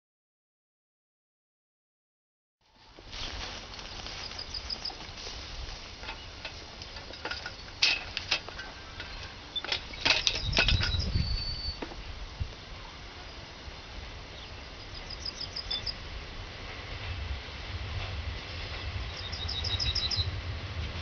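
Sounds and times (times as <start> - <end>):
wind rumble on microphone: 2.7 - 21.0
sharp clicks and rustles: 3.0 - 11.2.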